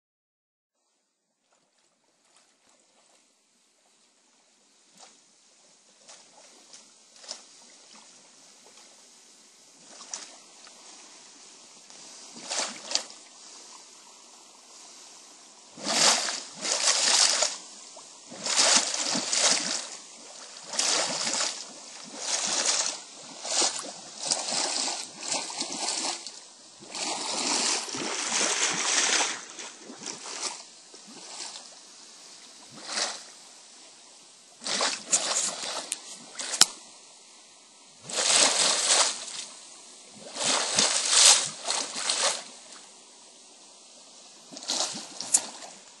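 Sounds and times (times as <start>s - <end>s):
water churning and splashing: 9.8s - 14.2s, 15.5s - 31.8s, 32.6s - 33.5s, 34.6s - 36.8s, 38.0s - 42.9s, 44.5s - 46.0s.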